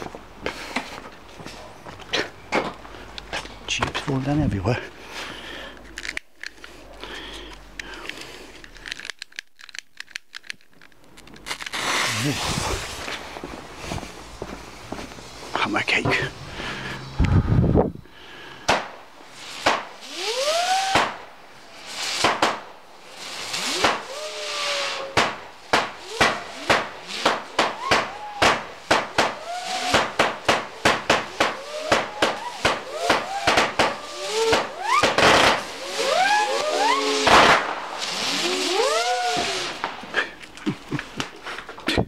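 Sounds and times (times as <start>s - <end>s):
crackling hiss: 0.0s - 42.0s
rising firework whistles: 11.4s - 40.4s
firework barrage: 11.4s - 41.4s.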